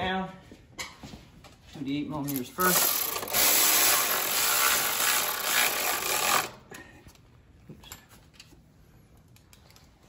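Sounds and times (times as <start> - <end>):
power tool driving bolts: 2.3 - 6.6.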